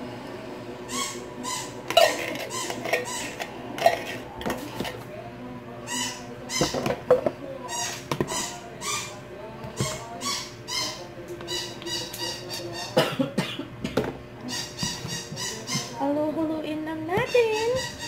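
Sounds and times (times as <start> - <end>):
metal spoon scraping tin can: 1.9 - 5.0.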